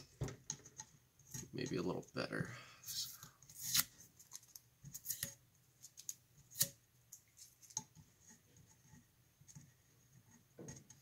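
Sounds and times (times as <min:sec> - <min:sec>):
tape peeling crackles and ticks: 0:02.9 - 0:07.8.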